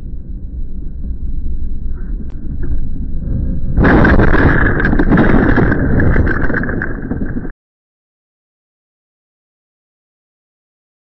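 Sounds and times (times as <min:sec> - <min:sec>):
car crash: 0:03.8 - 0:07.5.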